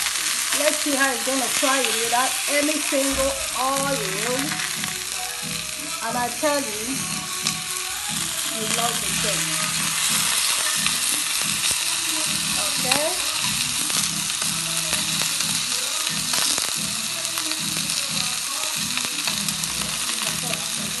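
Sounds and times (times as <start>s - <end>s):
chicken sizzling in frying pan: 0.0s - 21.0s.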